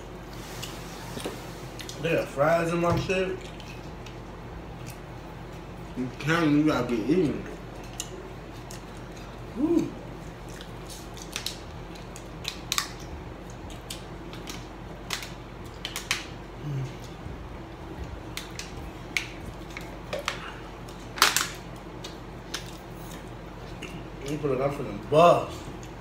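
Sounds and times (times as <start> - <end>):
short vocal sound: 9.5 - 10.0.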